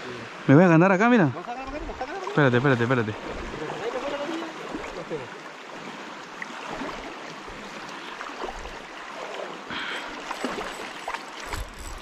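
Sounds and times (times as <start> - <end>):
river water flowing: 0.0 - 12.0
water splashing: 1.5 - 12.0.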